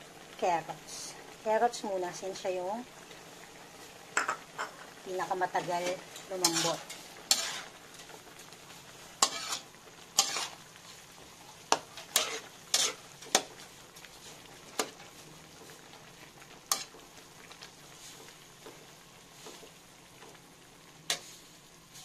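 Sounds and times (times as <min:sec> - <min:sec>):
meat sizzling: 0:00.0 - 0:22.0
metal spatula scraping a wok: 0:05.6 - 0:08.2, 0:09.2 - 0:10.8, 0:11.7 - 0:13.6, 0:16.7 - 0:17.0, 0:21.1 - 0:22.0.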